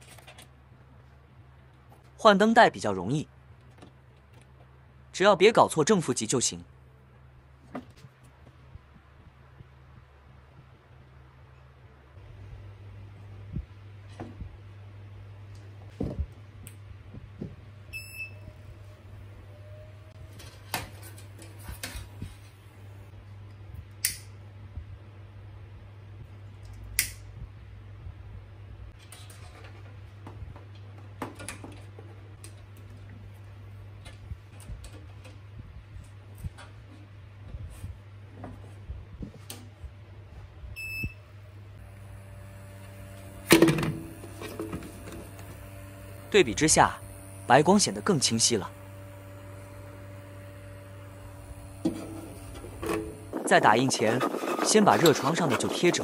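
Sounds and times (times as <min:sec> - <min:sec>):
printer hum with high whine: 0:41.8 - 0:56.0.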